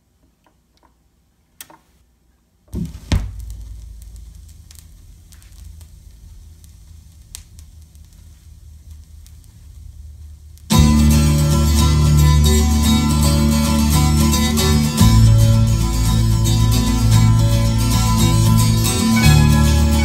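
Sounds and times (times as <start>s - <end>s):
stylus thump on record: 2.7s - 9.9s
vinyl crackles and pops: 2.7s - 20.0s
record groove rumble: 2.8s - 20.0s.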